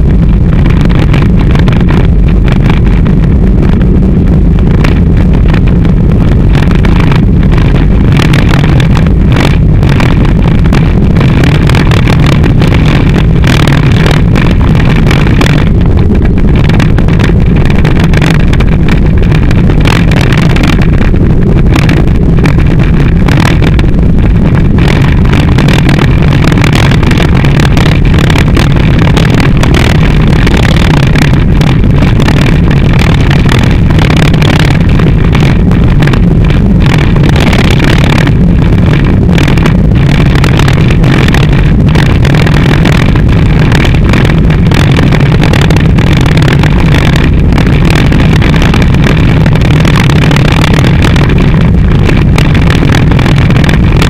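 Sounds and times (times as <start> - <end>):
mountain bike rumble: 0.0 - 54.0
wind buffeting microphone: 0.0 - 54.0.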